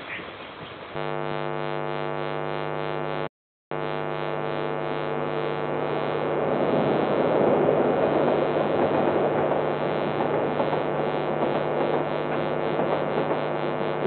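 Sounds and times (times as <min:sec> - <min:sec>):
diesel locomotive droning hum: 0:00.0 - 0:03.2, 0:03.8 - 0:14.0
train rumble: 0:06.2 - 0:13.8.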